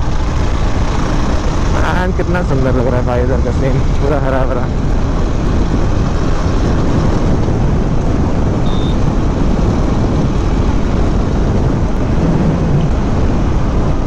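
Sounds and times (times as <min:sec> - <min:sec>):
motorcycle engine running: 0:00.0 - 0:14.0
wind rush over microphone: 0:00.0 - 0:14.0.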